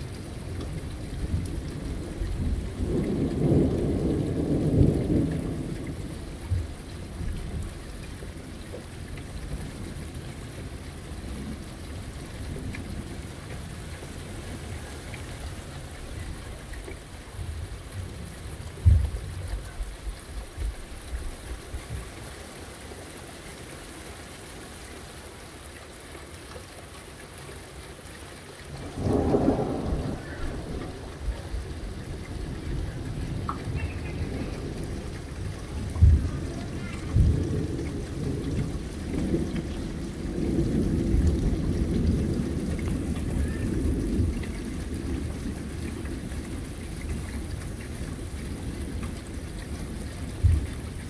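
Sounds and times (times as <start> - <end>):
heavy rain falling: 0.0 - 51.0
thunder rolling: 1.2 - 7.7, 28.8 - 47.5.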